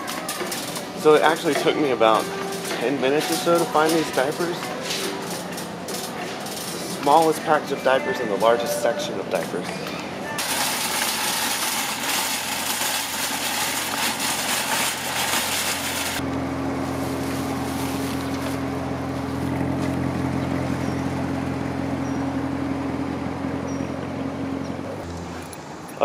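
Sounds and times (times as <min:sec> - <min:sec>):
shopping cart wheels rattling: 0:00.0 - 0:09.6, 0:10.4 - 0:16.2, 0:16.8 - 0:20.9.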